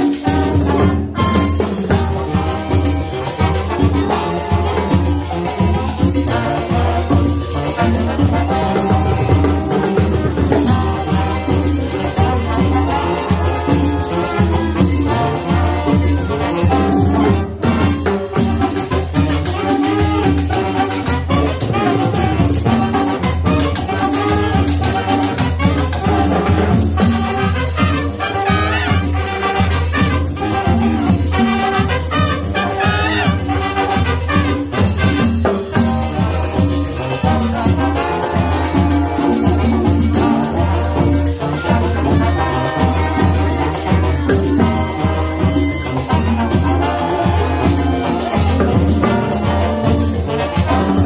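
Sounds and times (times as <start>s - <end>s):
brass band dance music: 0.0s - 51.0s
drums with steady beat: 0.0s - 51.0s.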